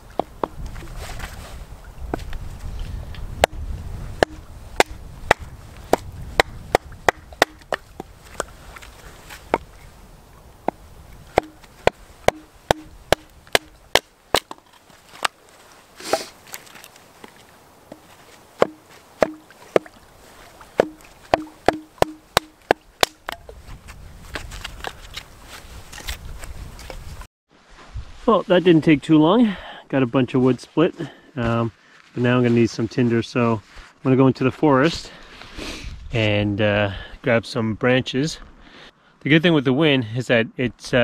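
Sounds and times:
hatchet chopping firewood: 0.0 - 0.7, 3.4 - 8.5, 10.7 - 15.4, 17.9 - 20.0, 20.8 - 23.6.

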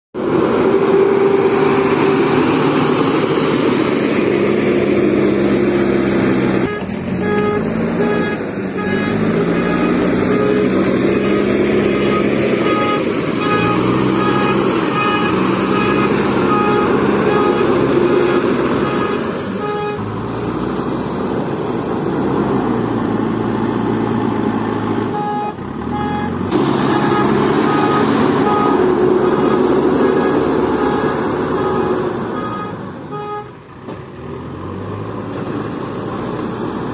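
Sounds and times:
diesel engine working under load: 0.2 - 36.9.

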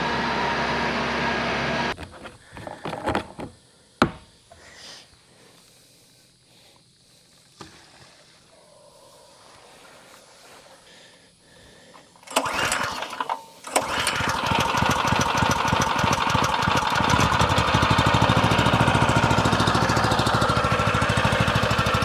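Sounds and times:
small gasoline engine starting: 0.0 - 2.0, 12.1 - 22.0.

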